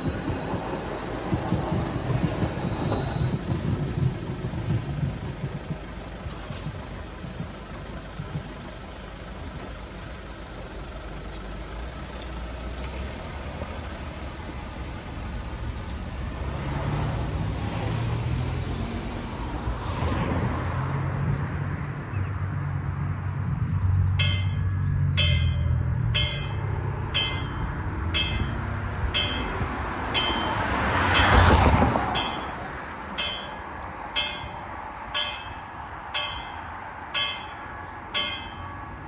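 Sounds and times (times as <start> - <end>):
level-crossing warning bells: 0.0 - 6.5, 24.2 - 39.0
road traffic: 0.0 - 39.0
vehicle engine hum: 0.0 - 39.0
vehicle passing close: 24.2 - 38.7.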